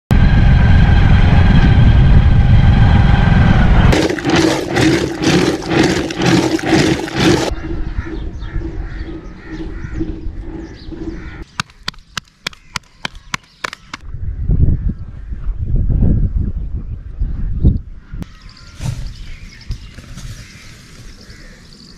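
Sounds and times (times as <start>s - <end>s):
churn stick splashing milk: 4.0s - 7.5s.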